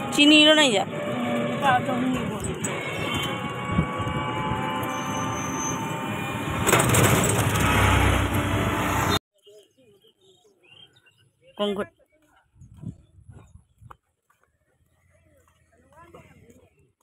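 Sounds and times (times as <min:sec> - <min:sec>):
rickshaw engine whine: 0:00.0 - 0:09.2
road rumble: 0:00.0 - 0:09.2.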